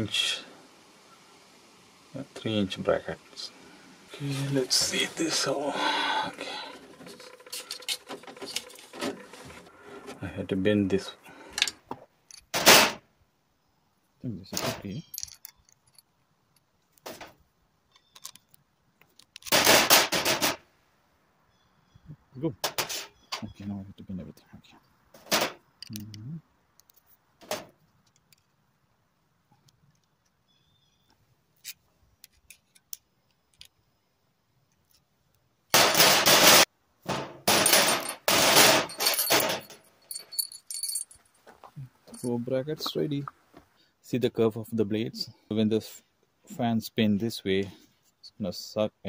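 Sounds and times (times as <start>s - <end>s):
metal clicks and clatter: 6.7s - 9.4s, 14.6s - 16.1s, 37.5s - 41.2s
metal brackets and pliers clattering: 14.5s - 16.1s, 25.2s - 26.1s, 35.8s - 41.2s, 42.0s - 42.4s
loud metal rattling clatter: 19.5s - 20.6s, 35.8s - 39.8s.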